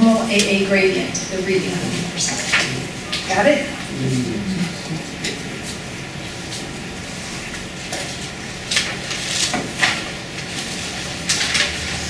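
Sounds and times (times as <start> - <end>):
faint hum: 0.0 - 8.9.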